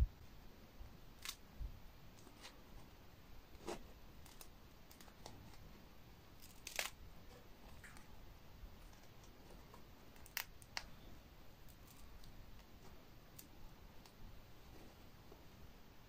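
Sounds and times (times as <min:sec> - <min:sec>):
pizza crust crackling in hand: 0:01.2 - 0:01.4, 0:03.6 - 0:05.7, 0:06.4 - 0:08.2, 0:08.8 - 0:14.2.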